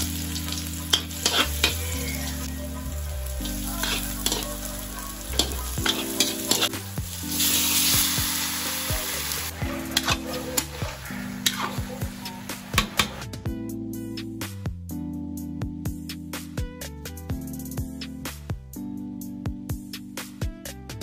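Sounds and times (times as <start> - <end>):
food sizzling in hot oil: 0.0 - 13.2
metal spatula scraping wok: 0.2 - 2.5, 3.4 - 13.2.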